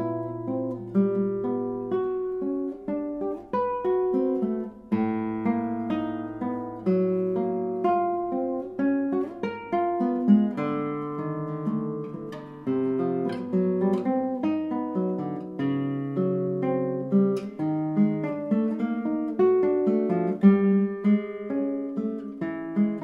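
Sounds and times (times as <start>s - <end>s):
classical guitar playing: 0.0s - 23.0s.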